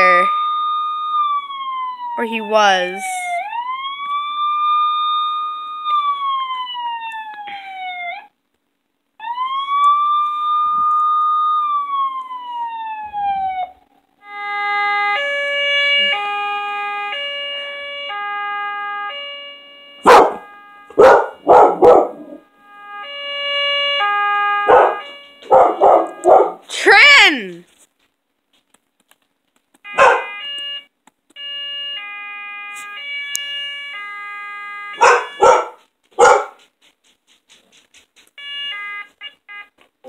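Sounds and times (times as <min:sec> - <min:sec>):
siren through small speaker: 0:00.0 - 0:08.3, 0:09.2 - 0:27.6, 0:29.9 - 0:36.4, 0:38.4 - 0:39.7
dog barking loudly: 0:20.0 - 0:22.4, 0:24.6 - 0:26.7, 0:29.9 - 0:30.4, 0:35.0 - 0:36.7.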